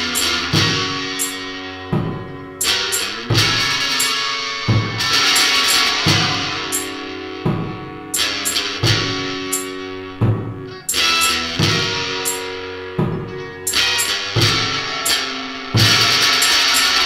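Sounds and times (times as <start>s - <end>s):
cymbal crashes: 0.0s - 17.0s
noise rock band playing: 0.0s - 17.0s
heavy drum hits: 1.9s - 2.4s, 4.6s - 8.0s, 10.2s - 10.7s, 13.0s - 13.4s, 15.8s - 16.3s.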